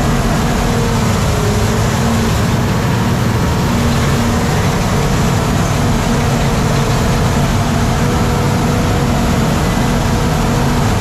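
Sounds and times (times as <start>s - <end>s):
bulldozer diesel engine running: 0.0s - 11.0s.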